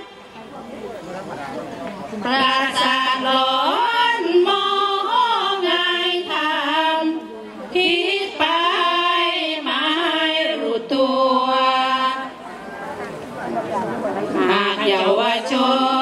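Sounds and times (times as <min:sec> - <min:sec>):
women singing chanted verse: 0:02.2 - 0:12.4, 0:14.3 - 0:16.0.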